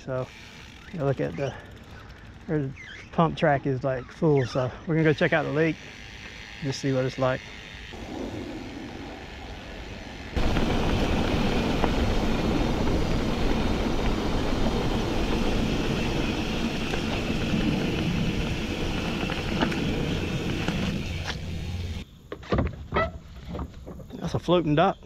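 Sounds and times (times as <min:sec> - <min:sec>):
bike tyre rumble: 0:00.0 - 0:22.0
bike knocking on bumps: 0:10.4 - 0:21.8.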